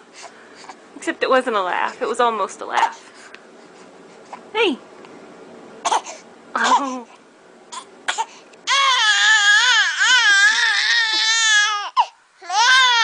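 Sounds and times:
infant crying: 0:07.8 - 0:13.0.

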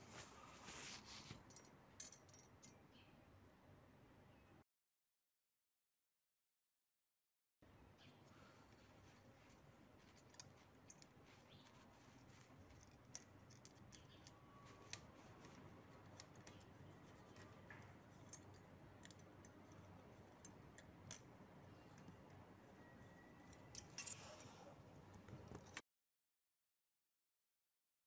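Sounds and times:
metal feeler gauge clicks and scrapes: 0:12.3 - 0:21.3, 0:23.5 - 0:24.6.

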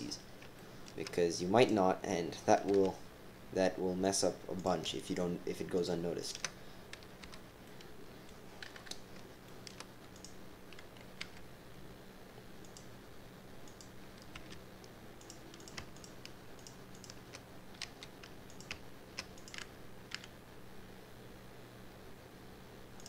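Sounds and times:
faint low hum: 0:00.0 - 0:23.0
keyboard and mouse clicks: 0:02.6 - 0:03.0, 0:06.3 - 0:11.4, 0:13.6 - 0:20.3.

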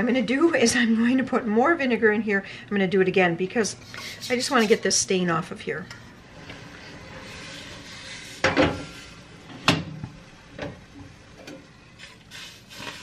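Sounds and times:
pot scraping on grate: 0:03.8 - 0:05.0, 0:05.9 - 0:09.8
steady gas hiss: 0:11.9 - 0:13.0.

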